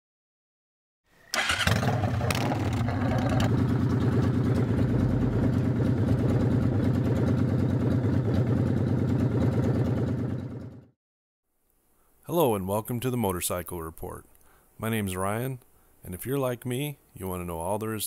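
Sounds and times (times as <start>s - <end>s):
electric starter cranking: 1.3s - 3.7s
motorcycle engine idling: 1.4s - 10.9s.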